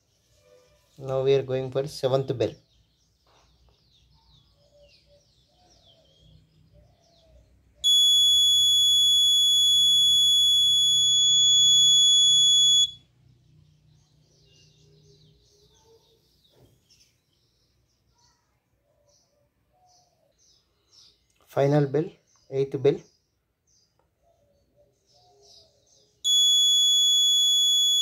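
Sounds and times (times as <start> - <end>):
high-pitched buzzer tone: 7.8 - 13.0, 26.3 - 28.0.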